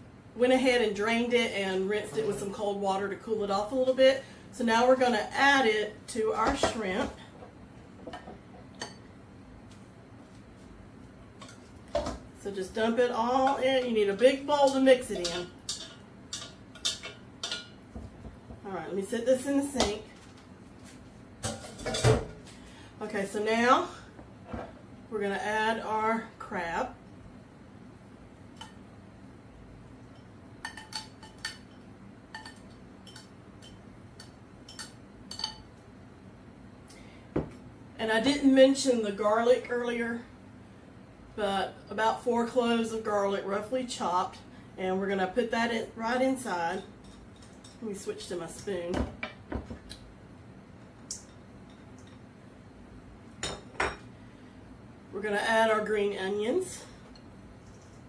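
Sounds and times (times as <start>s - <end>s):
utensils clinking on steel bowl: 14.6s - 17.8s, 30.1s - 35.7s.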